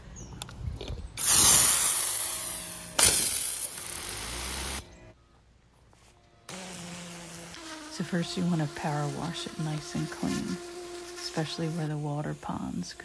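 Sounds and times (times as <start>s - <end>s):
pressure washer spray hissing: 1.2s - 4.8s, 6.5s - 13.0s.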